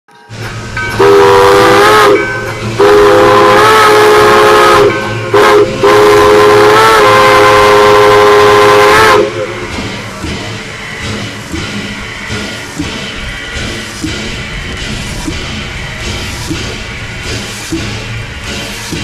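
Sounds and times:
steam locomotive chime whistle: 0.2 - 10.4
steam hiss: 0.3 - 19.0.

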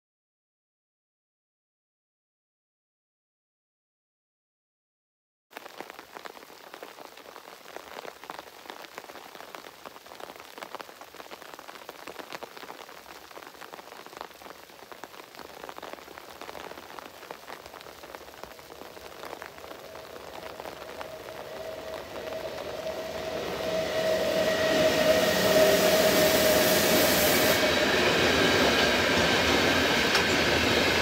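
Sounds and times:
rain drops crackling: 5.5 - 31.0
electric locomotive tone: 19.9 - 31.0.

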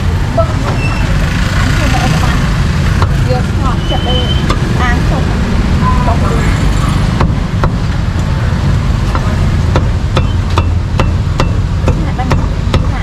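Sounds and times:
cleaver chopping meat on board: 9.1 - 13.0.

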